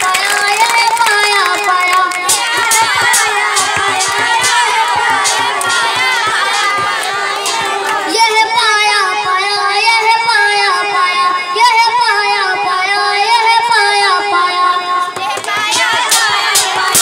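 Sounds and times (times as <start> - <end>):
boy singing into a microphone: 0.0 - 17.0.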